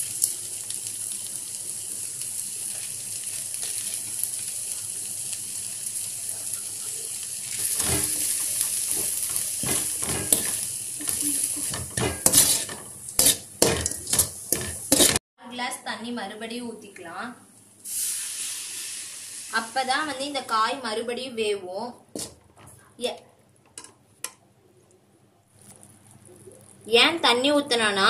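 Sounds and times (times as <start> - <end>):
vegetables sizzling in oil: 0.0 - 15.2, 17.8 - 20.4
ladle scraping a pan: 7.6 - 15.2.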